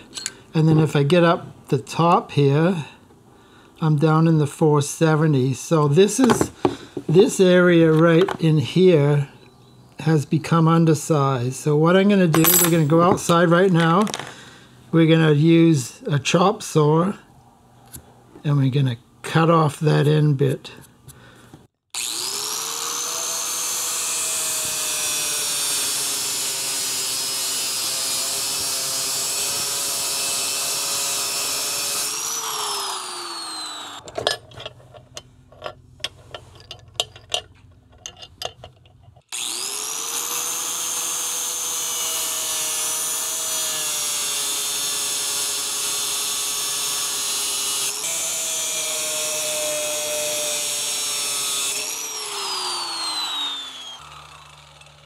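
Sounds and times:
chop saw whining and cutting: 21.9 - 34.0, 39.3 - 55.0.

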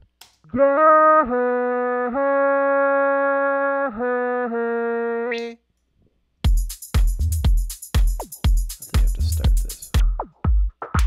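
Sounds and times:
electronic drum beat: 6.4 - 11.0.

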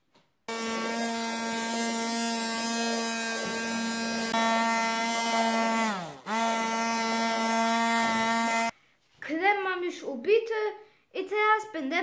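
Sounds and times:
stick blender motor hum: 0.5 - 8.7.

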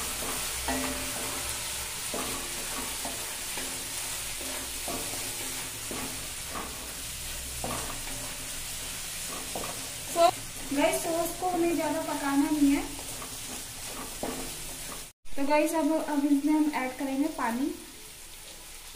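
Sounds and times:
spatula scraping in a pan: 0.0 - 15.2
vegetables sizzling: 0.0 - 18.9.

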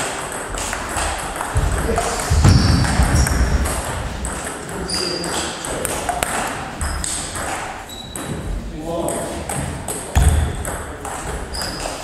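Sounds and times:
feet thudding and squeaking on floor: 1.5 - 8.7, 11.3 - 12.0.

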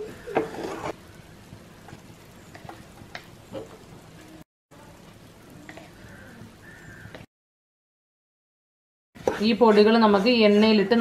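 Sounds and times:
spices sizzling in oil: 0.0 - 7.2.

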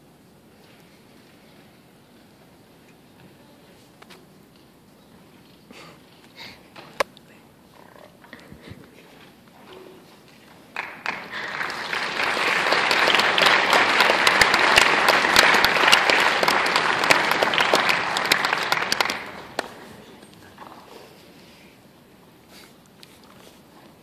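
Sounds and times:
audience applauding: 10.5 - 20.1.

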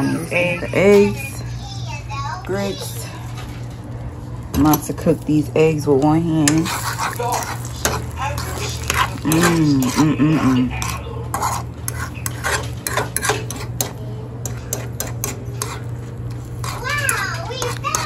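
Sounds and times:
eggs frying: 0.0 - 18.0
metal fork scraping a frying pan: 6.4 - 18.0
person humming: 9.2 - 10.7.

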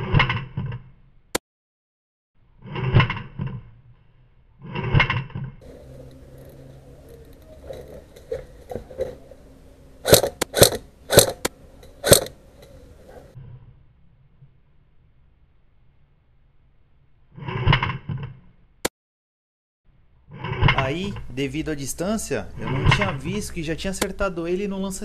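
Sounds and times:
airsoft rifle shots: 10.0 - 12.4.

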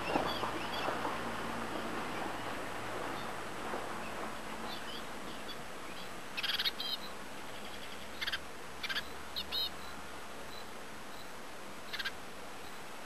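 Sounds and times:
high bird chirps: 6.4 - 10.6.

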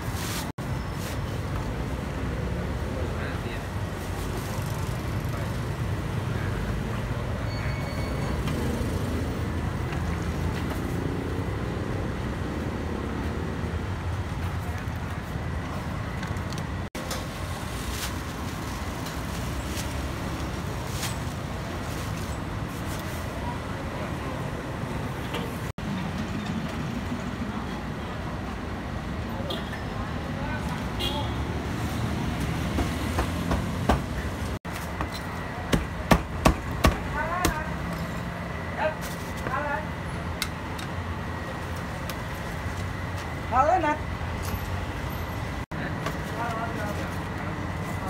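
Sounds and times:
passing motorbikes and cars: 4.2 - 14.0.

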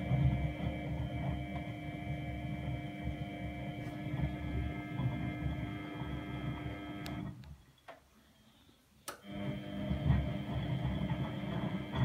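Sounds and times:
washing machine motor hum: 0.0 - 7.6, 9.0 - 12.0.

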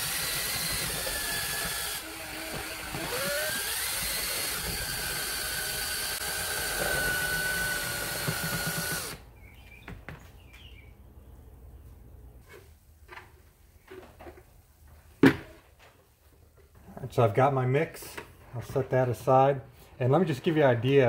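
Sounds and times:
drill motor whine: 0.0 - 9.2.

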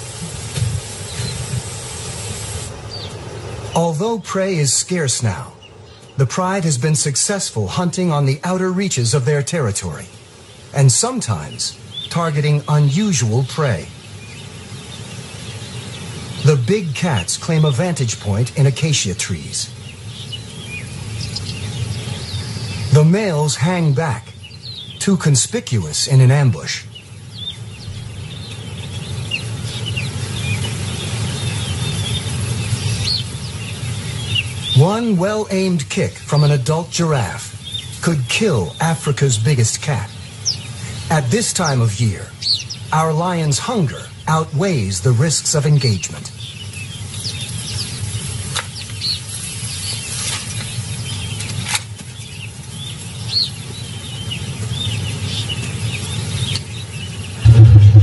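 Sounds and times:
birds chirping: 0.0 - 58.0
low steady rumble: 57.4 - 58.0.

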